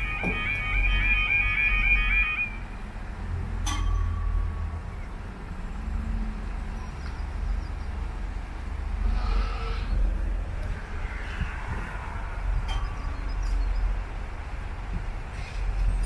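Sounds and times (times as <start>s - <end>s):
level crossing warbling alarm: 0.0s - 2.7s
low outdoor rumble: 0.0s - 16.0s
sharp clunk: 3.6s - 4.3s.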